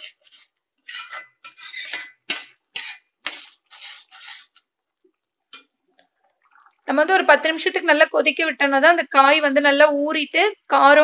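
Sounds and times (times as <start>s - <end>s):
ladle scraping metal pan: 0.0s - 4.6s
ladle stirring thick gravy: 0.0s - 7.7s.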